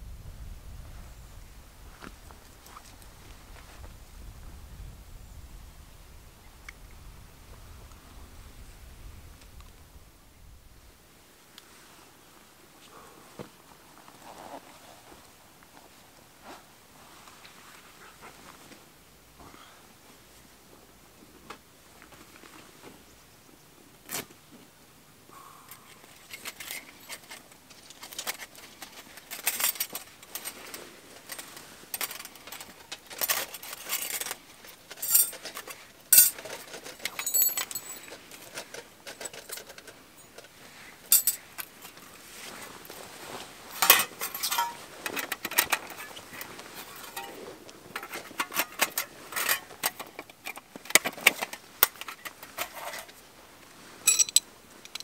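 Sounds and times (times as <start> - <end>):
knife and metal plates clinking: 31.2 - 40.5, 43.8 - 46.2, 46.8 - 47.4, 54.0 - 55.0.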